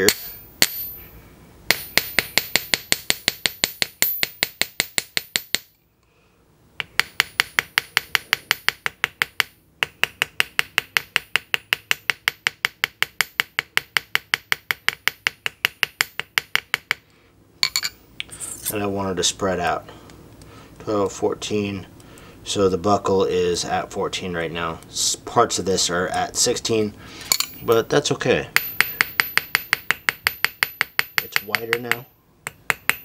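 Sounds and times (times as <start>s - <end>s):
hammer striking metal on anvil: 0.0s - 1.0s, 1.7s - 5.7s, 27.3s - 27.8s, 28.6s - 33.0s.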